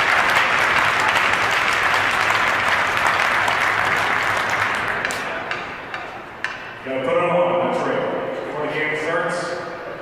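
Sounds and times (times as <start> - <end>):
crowd applauding: 0.0 - 5.5.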